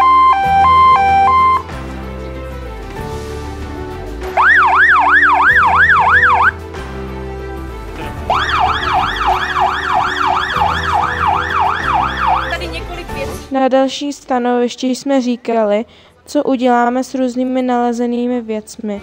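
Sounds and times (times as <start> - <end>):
police siren yelping: 0.0 - 1.7, 4.4 - 6.6, 8.2 - 12.7
background music: 0.0 - 19.0.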